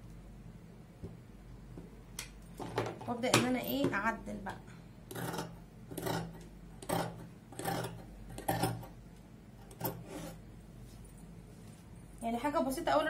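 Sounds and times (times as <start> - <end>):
shears cutting fabric: 5.1 - 8.8.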